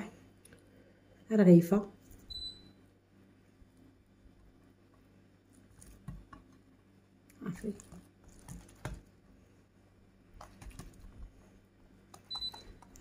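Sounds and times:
wet dough patting and squelching: 0:04.4 - 0:09.4, 0:10.2 - 0:13.0.

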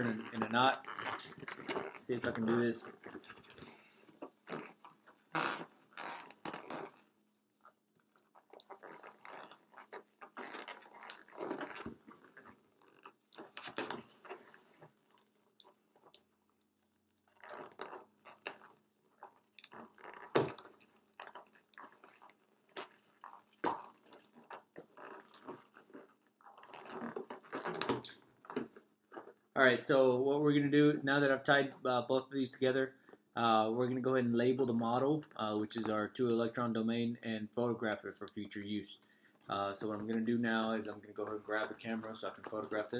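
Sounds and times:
balloons rubbing and scrunching: 0:00.0 - 0:16.1, 0:17.3 - 0:29.5, 0:37.7 - 0:42.9.

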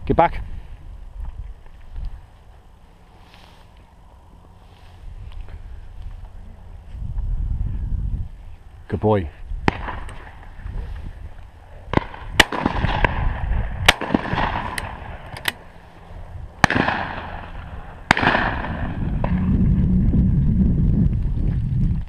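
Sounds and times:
gunshot echo: 0:09.6 - 0:10.4, 0:11.9 - 0:15.6, 0:16.6 - 0:19.5
shotguns firing: 0:09.6 - 0:10.6, 0:11.9 - 0:15.7, 0:16.6 - 0:19.4.

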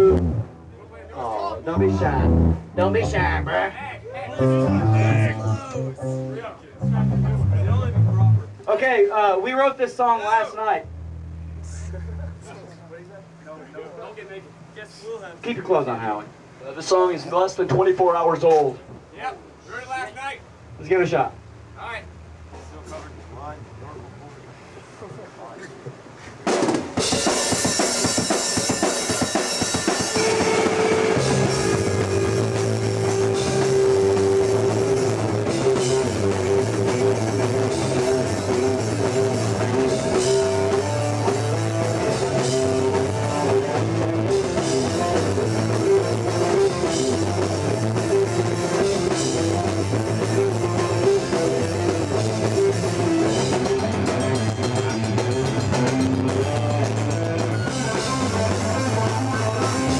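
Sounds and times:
electric guitar: 0:00.0 - 0:00.8, 0:01.7 - 0:03.6, 0:04.4 - 0:08.6, 0:10.8 - 0:13.4, 0:27.0 - 0:59.9
drum kit: 0:00.0 - 0:03.8, 0:04.4 - 0:08.7, 0:10.8 - 0:13.7, 0:21.1 - 0:24.6, 0:26.0 - 0:59.9
bass guitar: 0:00.0 - 0:08.7, 0:10.8 - 0:13.8, 0:20.6 - 0:24.8, 0:29.9 - 0:59.9.

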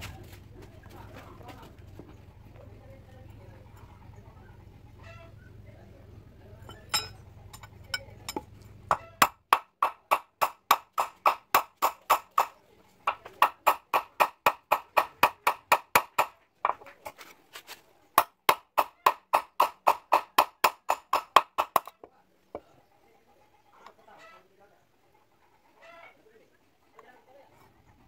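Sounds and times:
hammer striking metal on anvil: 0:06.7 - 0:12.5.

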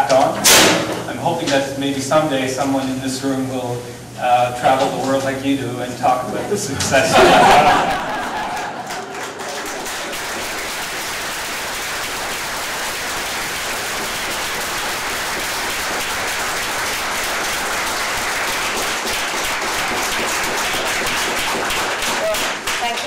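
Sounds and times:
audience applauding: 0:07.1 - 0:23.0.

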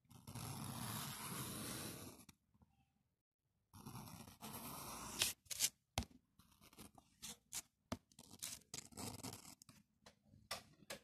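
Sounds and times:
graphite rod scratching paper: 0:00.0 - 0:02.3, 0:03.7 - 0:05.8, 0:06.4 - 0:09.7.

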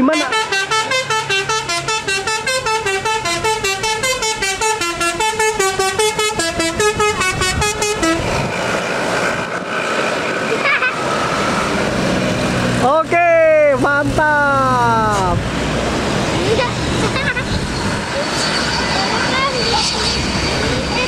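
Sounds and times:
bus horn playing a tune: 0:00.0 - 0:08.4
bus engine: 0:00.0 - 0:21.0
traffic noise: 0:00.0 - 0:21.0.

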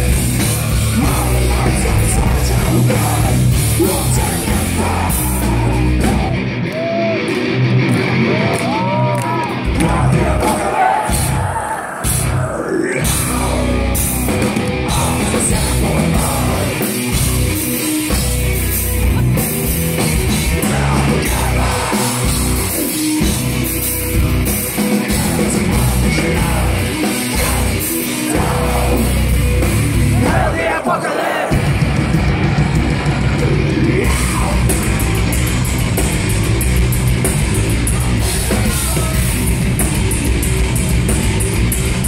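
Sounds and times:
heavy metal band playing live: 0:00.0 - 0:42.0
person singing into a microphone: 0:00.9 - 0:06.2, 0:14.8 - 0:17.1, 0:20.4 - 0:23.0, 0:24.8 - 0:29.3.

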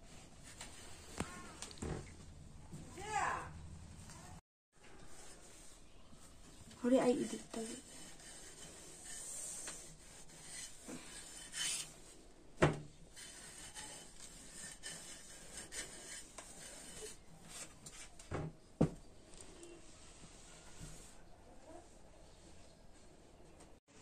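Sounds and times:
iron rubbing over cloth: 0:05.1 - 0:12.1.

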